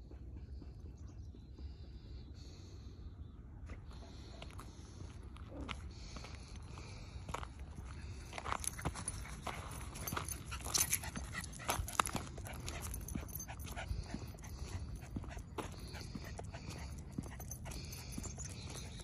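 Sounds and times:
steady low rumble: 1.7 - 19.0
small dog: 4.0 - 6.4, 8.2 - 19.0.

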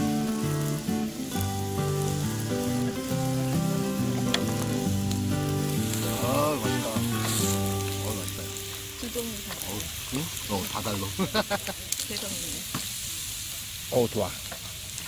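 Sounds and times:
background music: 0.0 - 9.4
meat sizzling on griddle: 0.0 - 15.0.

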